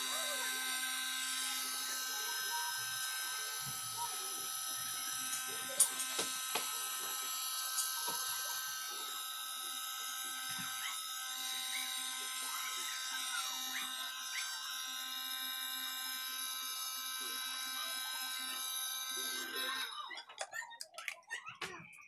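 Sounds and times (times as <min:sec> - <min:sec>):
hair dryer running: 0:00.0 - 0:20.0.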